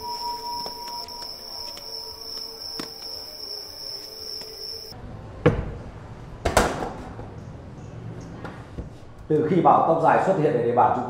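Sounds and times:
crickets chirping: 0.0s - 5.0s
faint musical tone: 0.0s - 5.0s.

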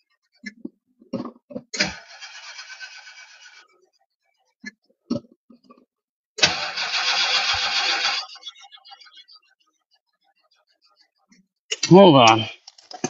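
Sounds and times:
engine starter cranking: 1.8s - 3.7s, 6.4s - 8.5s.

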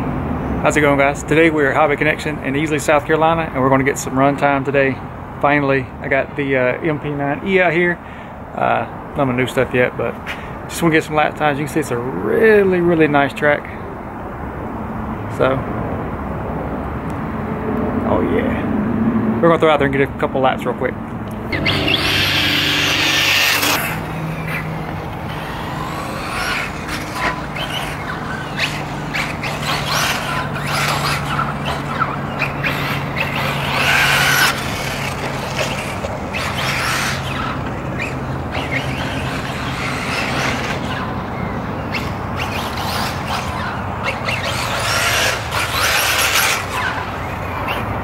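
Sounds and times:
steady low hum: 20.9s - 48.0s
electric toy car passing: 21.2s - 48.0s.

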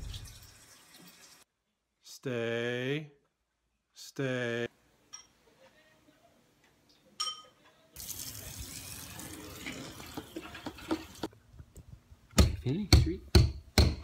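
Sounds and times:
hose water splashing: 8.0s - 11.3s.

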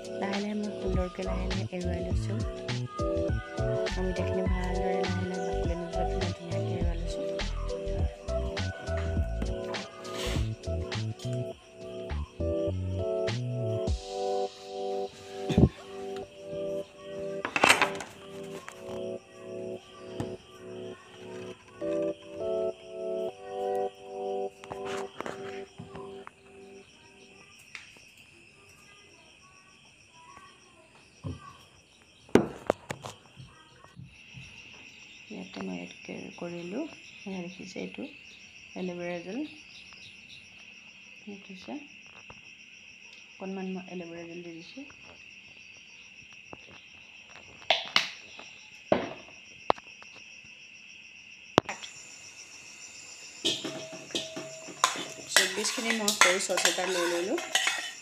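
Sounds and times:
crickets chirring: 0.0s - 58.0s
dishes and spoon clinking: 53.4s - 58.0s.

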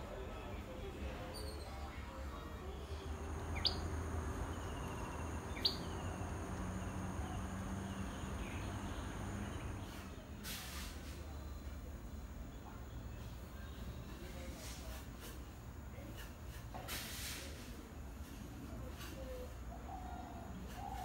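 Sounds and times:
bird call notes: 3.5s - 3.9s, 4.8s - 6.0s.

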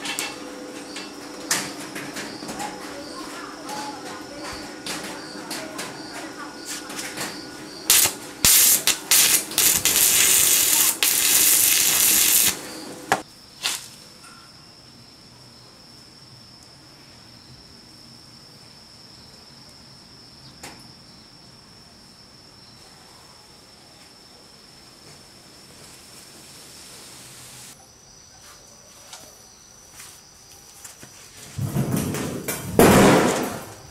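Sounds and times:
welding arc crackling: 7.8s - 13.9s.

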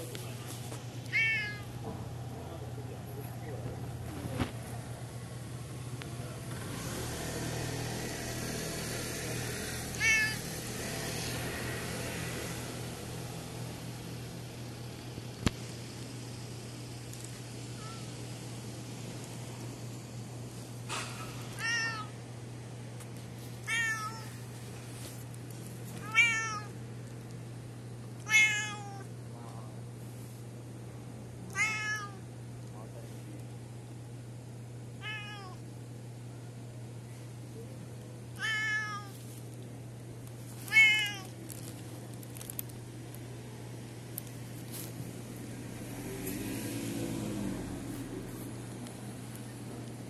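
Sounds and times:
cat meowing: 1.0s - 1.8s, 9.9s - 10.7s, 17.8s - 18.1s, 21.6s - 22.2s, 23.6s - 24.4s, 26.0s - 26.8s, 28.2s - 29.1s, 31.5s - 32.2s, 35.0s - 35.6s, 38.4s - 39.2s, 40.7s - 41.4s.

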